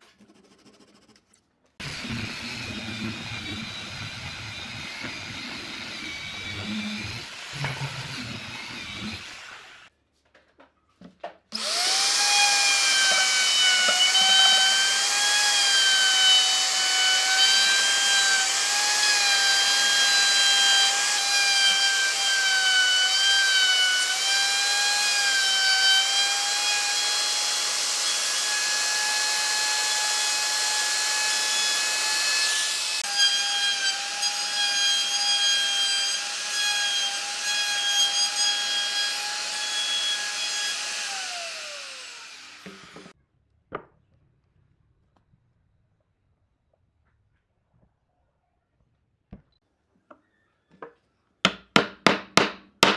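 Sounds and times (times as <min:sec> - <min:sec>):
router whining cutting wood: 0:01.8 - 0:09.9, 0:11.6 - 0:43.1.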